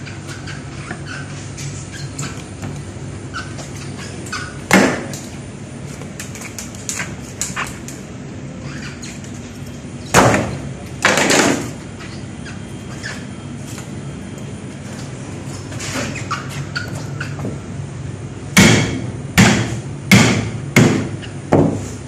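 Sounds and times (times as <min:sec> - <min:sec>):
steady mechanical hum: 0:00.0 - 0:22.0.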